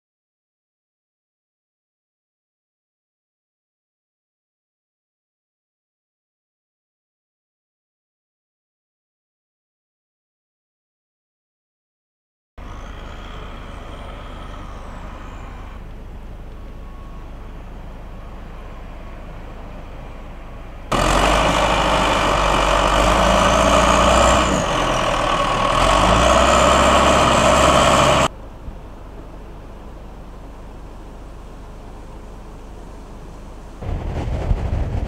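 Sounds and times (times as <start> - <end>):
diesel engine under load: 12.6 - 35.0.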